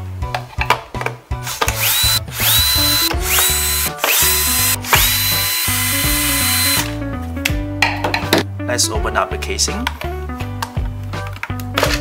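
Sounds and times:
background music: 0.0s - 12.0s
cordless drill motor whining: 1.5s - 6.9s.

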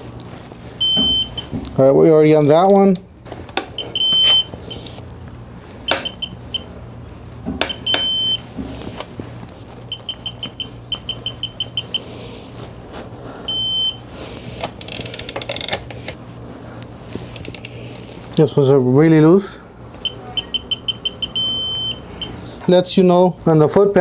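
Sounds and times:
torque wrench beeping: 0.8s - 1.5s, 3.8s - 5.0s, 5.9s - 6.7s, 7.6s - 8.4s, 9.9s - 12.1s, 13.5s - 14.0s, 20.0s - 22.4s
ratchet clicks: 14.7s - 16.0s.

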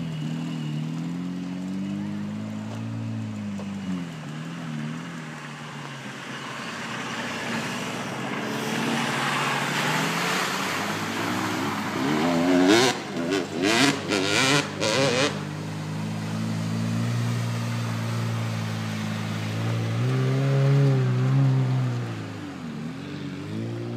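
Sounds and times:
off-road vehicle engine revving: 0.0s - 23.9s
rush of water and mud: 4.3s - 23.9s.

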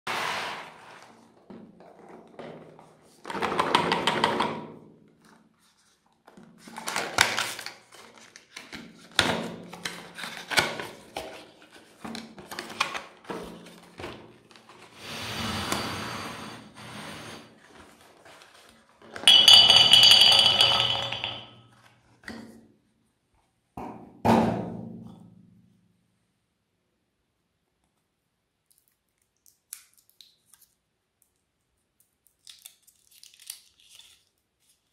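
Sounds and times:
eggs clattering into plastic bowl: 19.2s - 21.5s.

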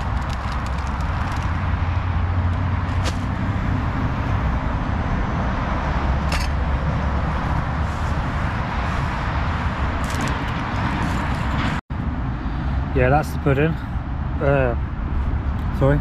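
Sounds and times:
pouches crackling: 0.0s - 1.7s
road traffic rumble: 0.0s - 16.0s.

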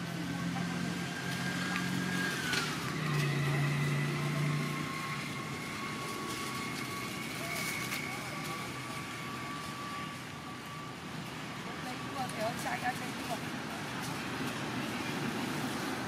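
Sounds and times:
engine hum with high whine: 0.0s - 16.0s.

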